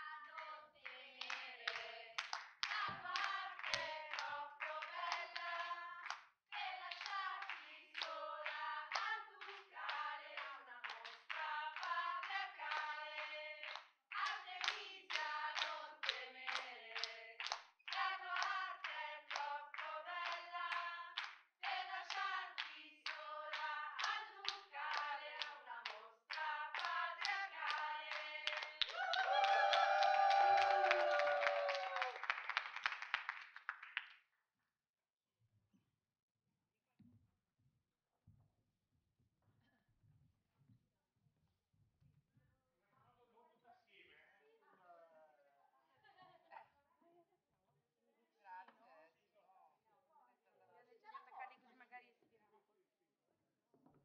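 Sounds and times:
group singing or chanting: 0.0 - 32.1
hands clapping a beat: 0.3 - 34.2.

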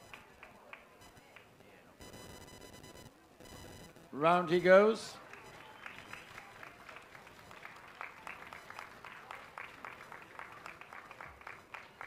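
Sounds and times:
light applause: 0.0 - 1.8, 4.5 - 12.0.

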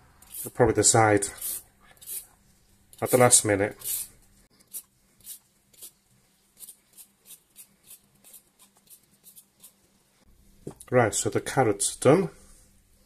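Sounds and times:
vegetable peeler scraping carrot: 0.2 - 0.6, 1.2 - 2.3, 3.0 - 4.1, 6.6 - 9.8.

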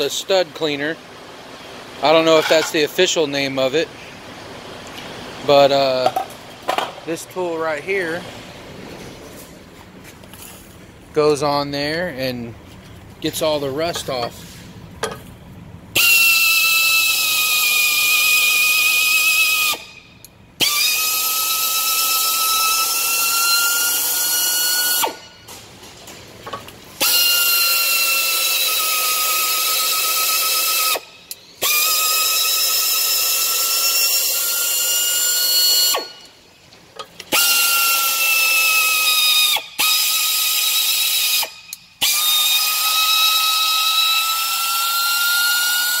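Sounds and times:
air drill whine with hiss: 16.0 - 20.0, 20.6 - 25.3, 27.0 - 36.2, 37.3 - 46.0.

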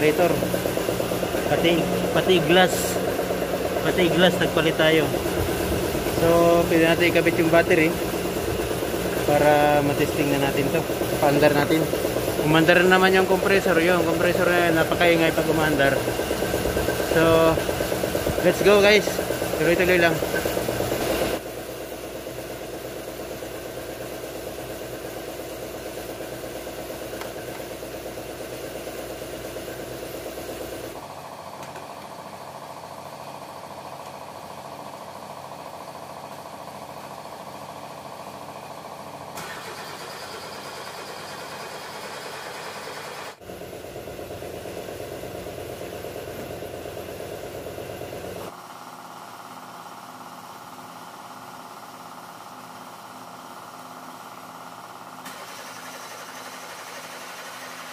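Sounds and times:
machinery running: 0.0 - 21.4.

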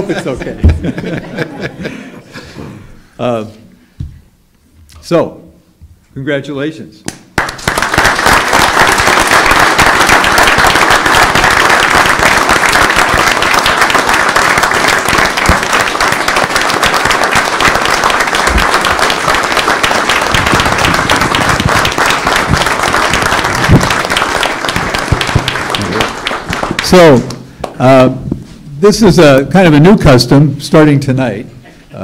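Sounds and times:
large audience applauding: 7.4 - 27.8.

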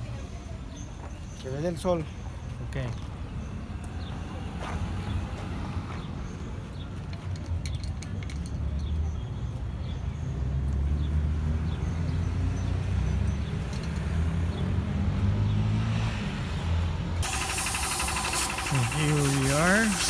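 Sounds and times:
vehicle engine rumbling: 17.1 - 20.0.

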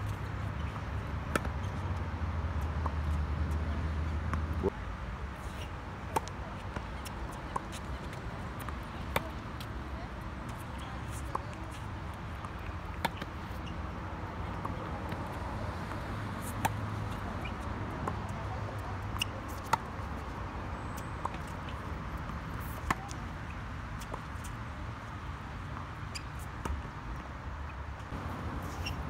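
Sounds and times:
background noise: 0.0 - 29.0
tennis ball bouncing: 0.7 - 1.8, 6.1 - 9.8, 10.5 - 13.7, 16.4 - 20.1, 21.2 - 23.2.

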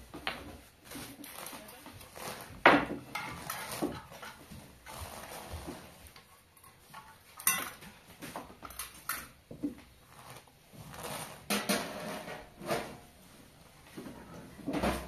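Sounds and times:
cookware and utensils clinking: 2.7 - 4.9, 6.2 - 9.4.

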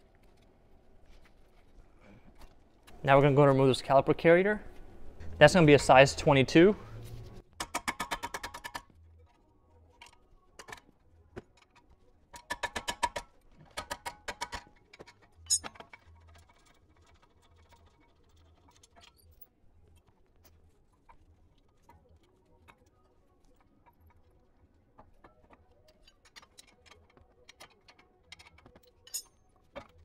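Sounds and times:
sharp metallic clink: 15.5 - 15.7.

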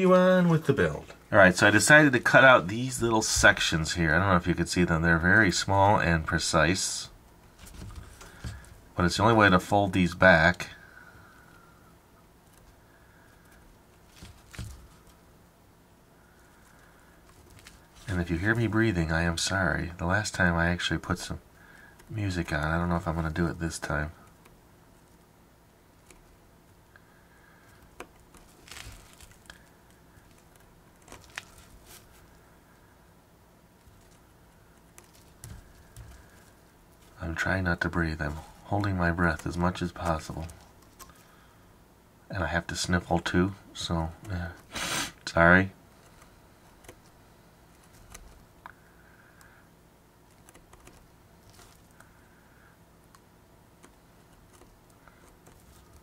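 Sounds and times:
paper crinkling: 12.5 - 15.2, 16.3 - 18.8, 27.4 - 32.4, 33.8 - 41.5, 45.9 - 48.5, 50.2 - 52.2, 53.8 - 56.0.

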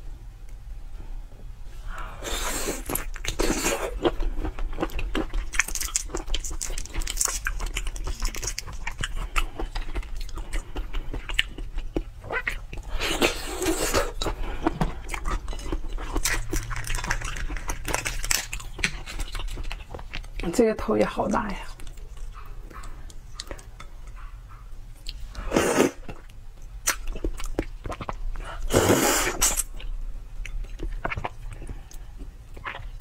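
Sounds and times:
wet biting and chewing: 2.3 - 20.5, 25.9 - 33.0
shrimp shell crackling: 15.4 - 20.3.

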